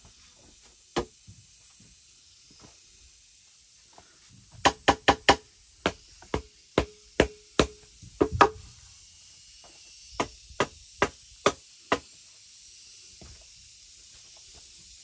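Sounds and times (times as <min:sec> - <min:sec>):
machete striking bamboo: 0:04.6 - 0:08.6, 0:10.2 - 0:12.1.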